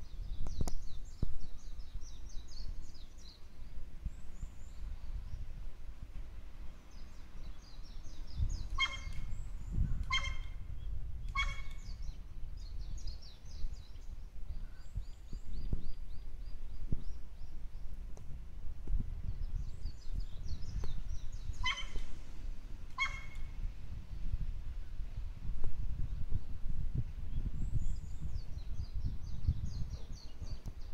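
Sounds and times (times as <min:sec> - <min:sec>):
crow giving harsh bark-like calls: 0:08.8 - 0:09.2, 0:10.1 - 0:10.6, 0:11.4 - 0:11.8, 0:21.6 - 0:22.0, 0:23.0 - 0:23.4.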